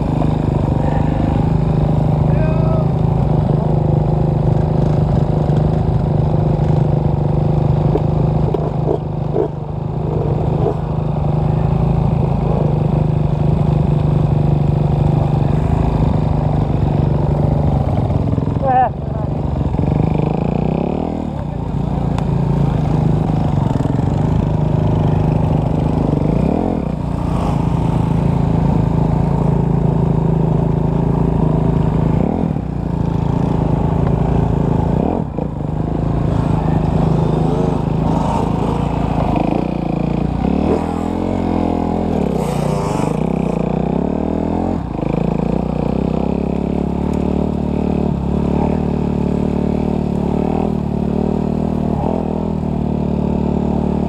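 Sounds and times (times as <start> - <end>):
dirt bike engine revving: 19.5 - 54.0.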